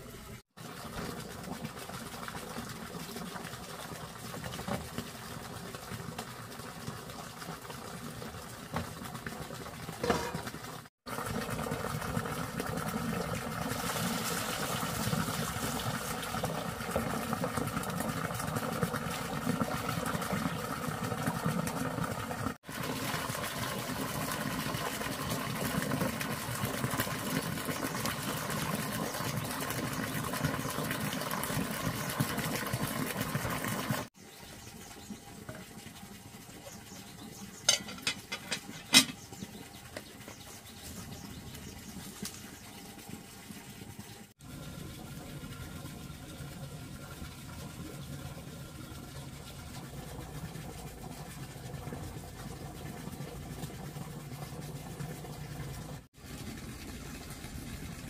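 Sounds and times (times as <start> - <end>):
water pouring from a hose into a tub: 0.0 - 58.0.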